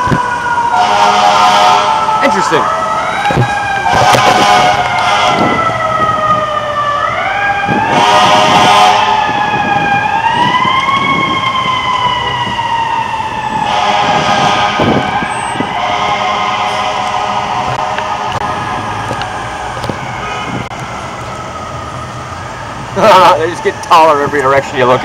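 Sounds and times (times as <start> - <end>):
fire truck siren wailing: 0.0 - 25.0.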